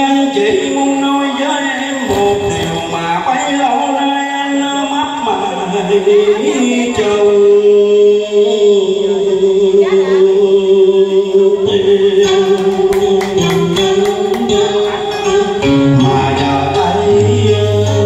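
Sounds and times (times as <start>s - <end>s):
karaoke backing track: 0.0s - 18.0s
quick percussion strikes: 12.3s - 15.5s.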